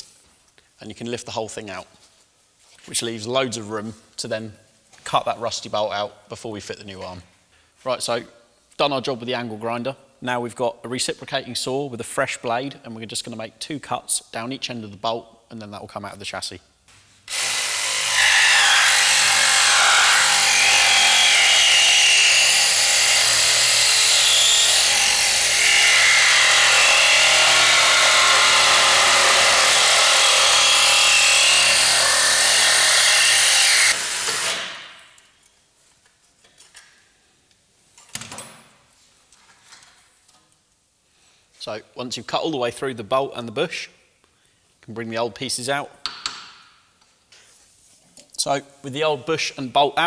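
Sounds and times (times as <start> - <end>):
reciprocating saw cutting metal bolt: 17.3 - 35.0.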